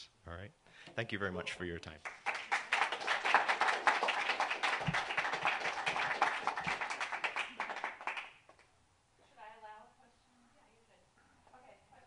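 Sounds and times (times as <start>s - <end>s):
audience applauding: 2.0s - 8.7s.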